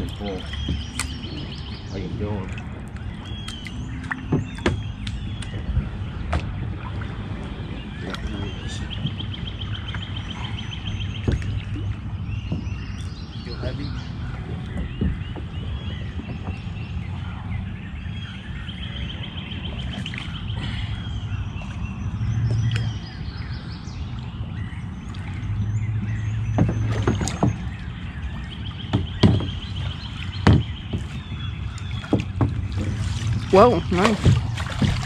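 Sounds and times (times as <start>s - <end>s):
birds chirping: 0.0s - 35.0s
paddle and net handled in kayak: 0.0s - 35.0s
steady low rumble: 0.0s - 35.0s
knocks against plastic hull: 4.1s - 5.7s, 11.2s - 13.0s, 14.5s - 16.7s, 26.0s - 27.8s, 28.8s - 35.0s.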